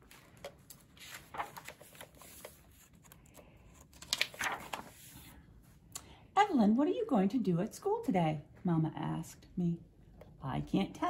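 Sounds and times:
book pages turning: 0.0s - 5.4s.

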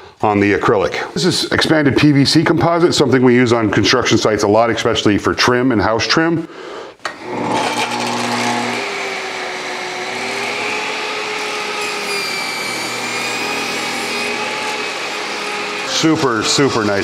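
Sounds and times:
table saw cutting plastic: 7.0s - 17.0s.

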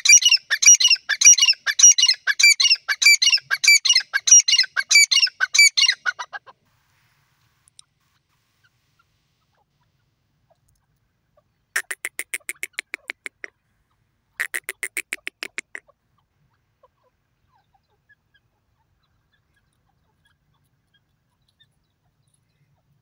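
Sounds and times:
francolin calling: 0.0s - 6.2s, 11.8s - 13.5s, 14.4s - 15.8s.

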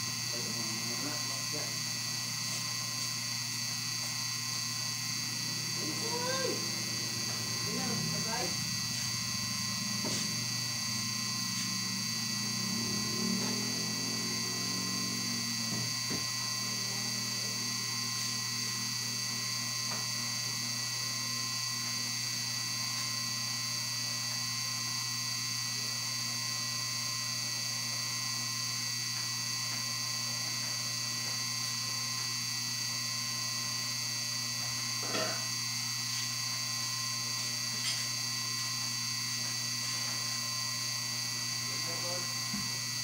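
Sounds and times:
electrical hum: 0.0s - 43.0s
high-pitched whine tones: 0.0s - 43.0s.

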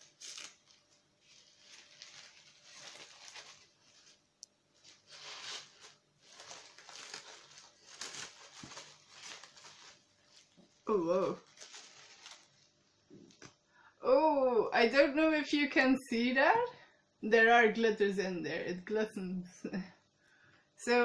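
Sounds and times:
soap wrapper crinkling and tearing: 0.0s - 4.2s, 4.9s - 10.6s.

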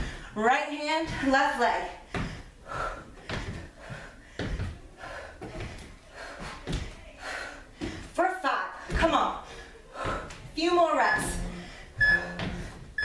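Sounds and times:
feet thudding on wooden floor: 1.0s - 7.0s, 8.8s - 9.3s, 11.2s - 13.0s.

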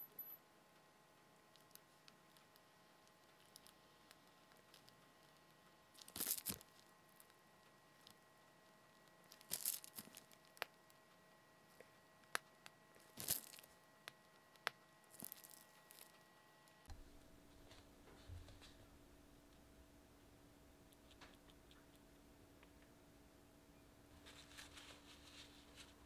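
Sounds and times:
plastic piping bag crinkling: 6.0s - 7.4s, 9.1s - 11.0s, 13.0s - 14.2s, 15.1s - 16.2s.

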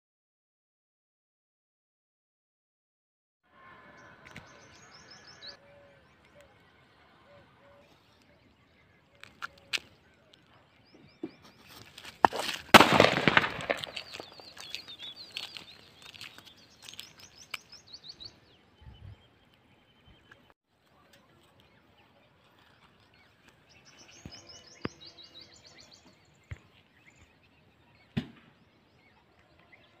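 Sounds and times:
firework pops: 12.2s - 14.8s
firework crackling: 12.4s - 14.9s.

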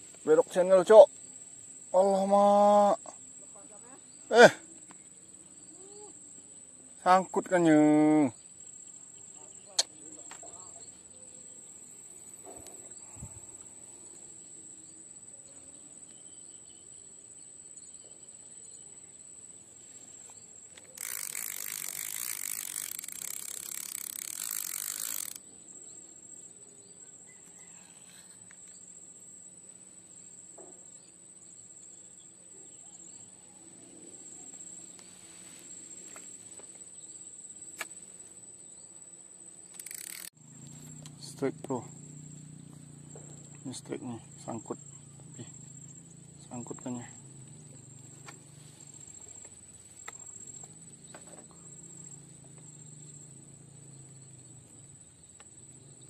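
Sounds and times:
insects whining: 0.0s - 56.0s
sharp click: 39.7s - 40.3s.

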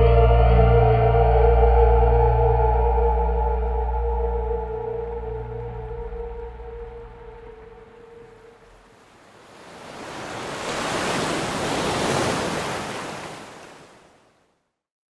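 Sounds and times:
ocean wave breaking: 4.5s - 14.5s.

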